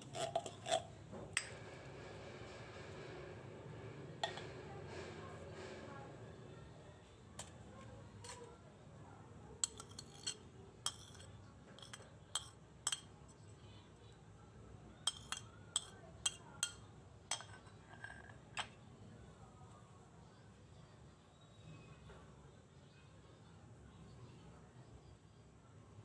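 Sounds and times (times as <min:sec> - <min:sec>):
metal spoon clinking on ceramic plate: 0:09.6 - 0:13.2, 0:15.0 - 0:18.8.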